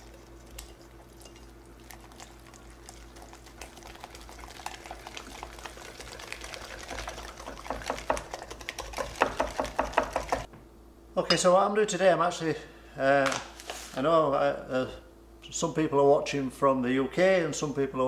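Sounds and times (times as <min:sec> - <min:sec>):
wet stirring of batter: 0:00.0 - 0:10.5.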